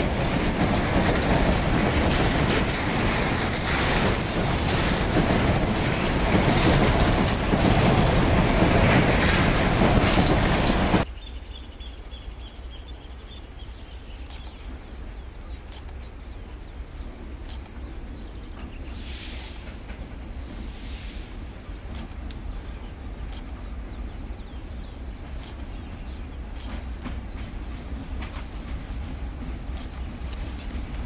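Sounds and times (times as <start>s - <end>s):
diesel locomotive rumble: 0.0s - 11.1s, 17.1s - 31.0s
insect chirring: 11.0s - 31.0s
brief hisses: 18.9s - 19.8s, 20.6s - 21.6s.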